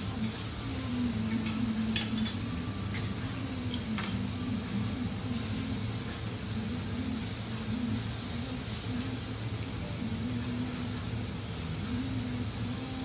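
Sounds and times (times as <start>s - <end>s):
food sizzling on a griddle: 0.0s - 13.0s.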